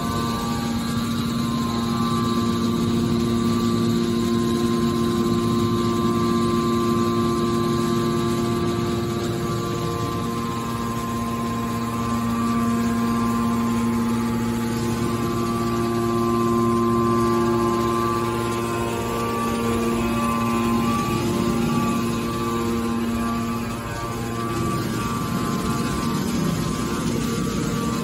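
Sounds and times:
hydraulic motor and pump humming: 0.0s - 28.0s.

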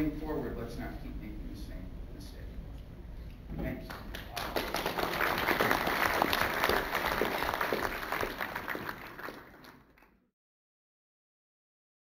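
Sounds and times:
audience applauding: 3.9s - 10.2s.

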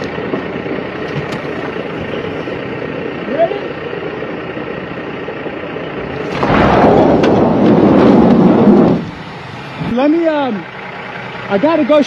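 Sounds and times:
tyres spinning in snow: 6.0s - 11.0s.

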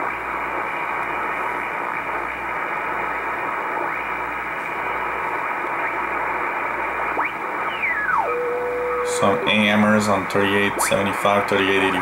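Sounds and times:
radio static hiss: 0.0s - 12.0s
faint radio whistles: 7.2s - 11.0s.

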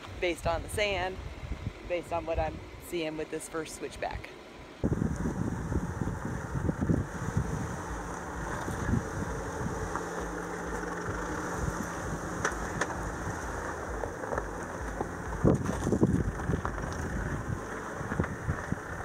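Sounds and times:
low engine hum: 3.8s - 19.0s
tyres crunching over stones: 7.9s - 19.0s.

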